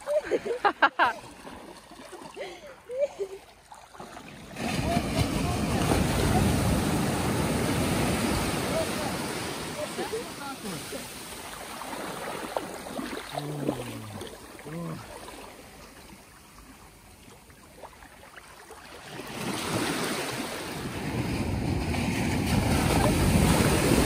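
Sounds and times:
wave breaking and washing in: 4.2s - 16.3s, 18.8s - 24.0s.

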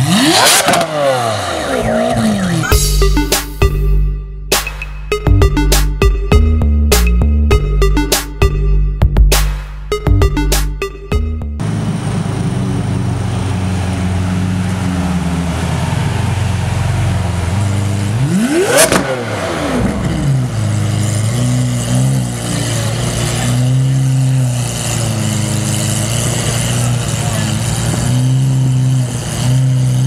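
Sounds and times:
sports car engine revving: 0.0s - 3.8s, 11.6s - 30.0s
exhaust crack: 11.6s - 30.0s.

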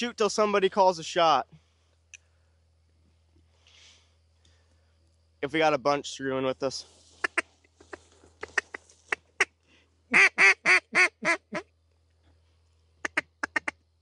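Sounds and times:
duck call clucks: 7.2s - 11.7s, 13.0s - 13.8s
duck call quacks: 7.2s - 11.7s, 13.0s - 13.8s.

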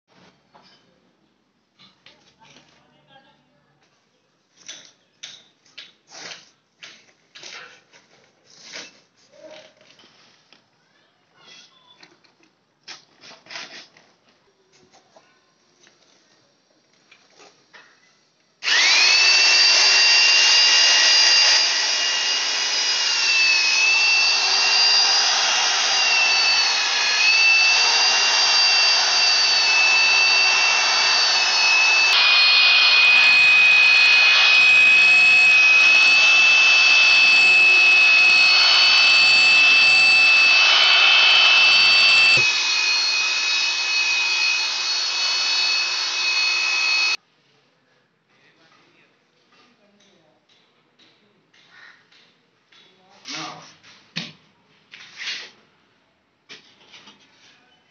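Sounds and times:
electric drill mixer whining: 18.6s - 47.2s.

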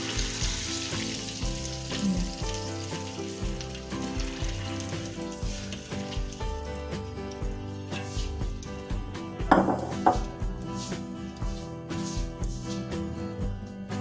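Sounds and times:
oil sizzling in a wok: 0.0s - 12.8s
background music: 0.0s - 14.0s.

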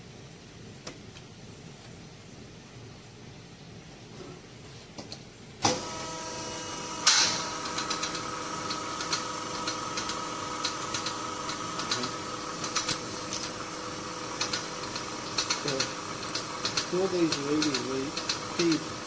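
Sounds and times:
machine humming: 5.6s - 19.0s.

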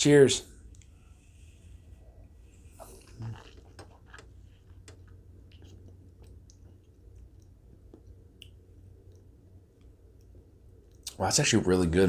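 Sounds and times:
wet mouth clicks and smacks: 3.0s - 11.2s.

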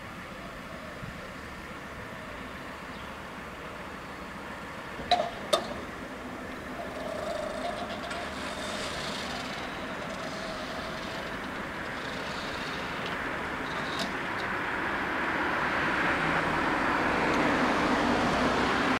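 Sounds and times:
car approaching: 0.0s - 18.9s
road traffic noise: 0.0s - 18.9s.

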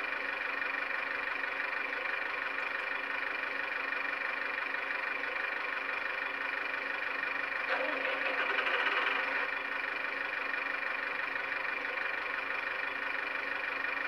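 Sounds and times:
diesel engine idling through small speaker: 0.0s - 14.0s.

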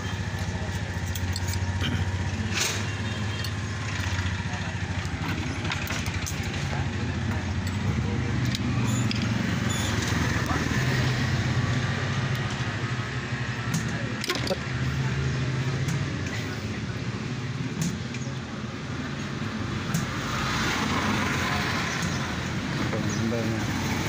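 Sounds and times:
metal tools clicking and tapping: 0.2s - 4.2s, 5.0s - 10.2s.

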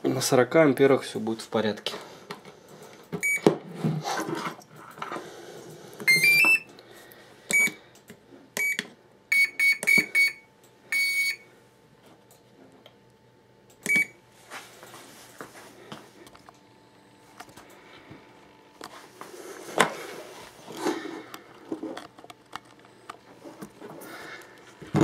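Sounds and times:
electronic meter beeps: 3.2s - 3.5s, 6.1s - 6.7s, 7.5s - 7.8s, 8.6s - 11.5s, 13.8s - 14.2s.

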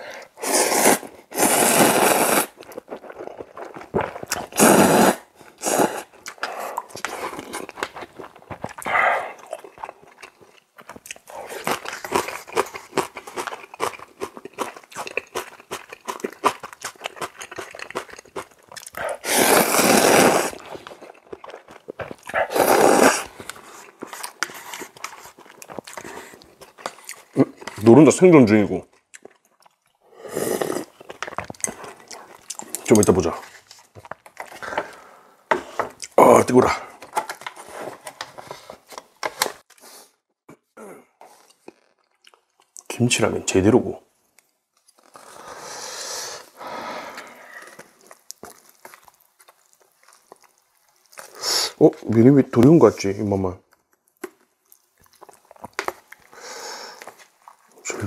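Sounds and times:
person slurping noodles: 0.0s - 7.7s, 17.2s - 21.6s, 22.2s - 25.0s, 30.1s - 31.1s, 45.0s - 48.2s
noodles slurped: 0.3s - 27.8s, 30.2s - 33.3s
soft chewing and mouth clicks: 2.5s - 4.6s, 5.5s - 19.2s, 20.6s - 22.5s, 23.1s - 27.9s, 28.8s - 35.0s, 41.2s - 43.0s, 44.2s - 45.4s, 46.4s - 52.2s, 53.6s - 58.0s.

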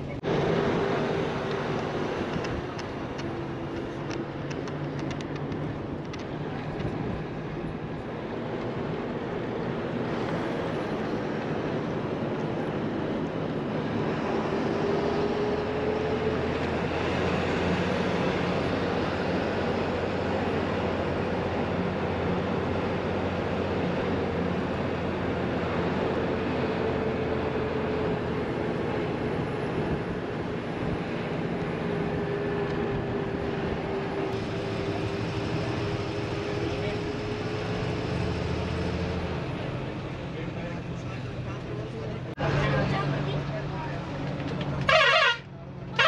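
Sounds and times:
bus engine and road noise: 0.0s - 46.0s.

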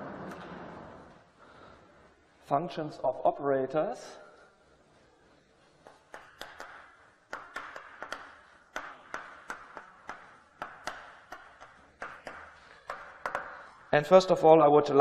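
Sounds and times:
chalk tapping on blackboard: 5.8s - 13.9s.

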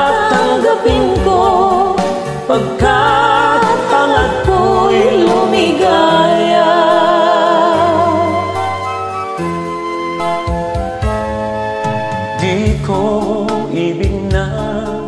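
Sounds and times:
man and woman singing duet: 0.0s - 8.6s, 12.4s - 15.0s
karaoke backing track: 0.0s - 15.0s.

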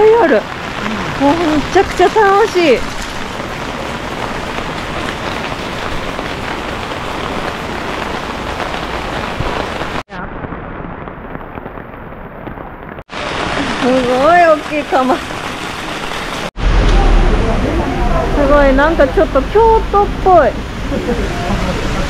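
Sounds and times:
rain pattering on an umbrella: 0.0s - 16.5s
rushing rain and water: 0.0s - 22.0s.

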